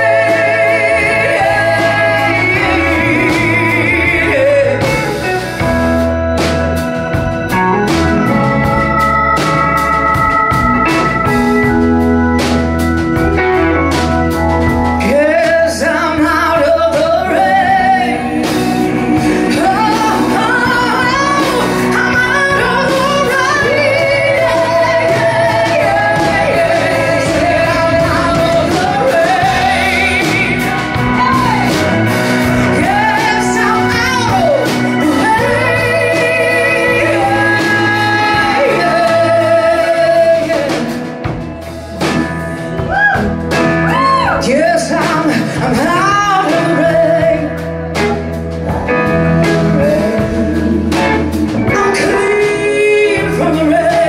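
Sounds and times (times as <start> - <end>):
female backing singers: 0.0 - 4.8, 16.5 - 40.9
soul blues band playing: 0.0 - 54.0
woman singing lead: 0.0 - 54.0.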